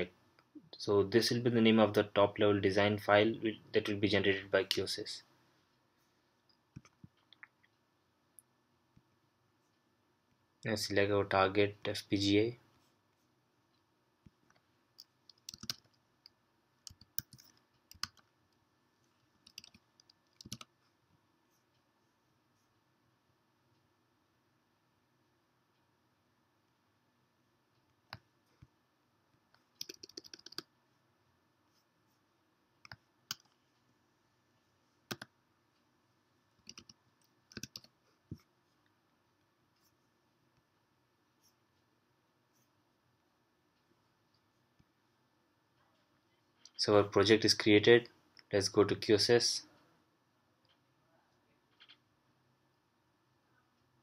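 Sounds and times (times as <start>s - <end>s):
keyboard keystrokes: 15.3s - 16.0s, 29.8s - 30.6s, 36.6s - 37.9s.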